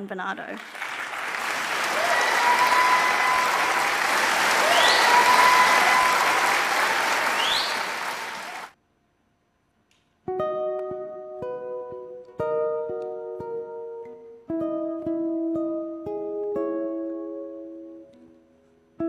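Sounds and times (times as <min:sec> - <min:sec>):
audience applauding: 0:00.6 - 0:08.8
whistles: 0:04.4 - 0:08.7.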